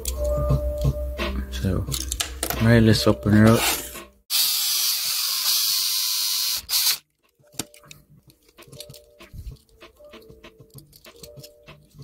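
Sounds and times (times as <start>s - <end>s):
power drill whining: 4.3s - 7.0s.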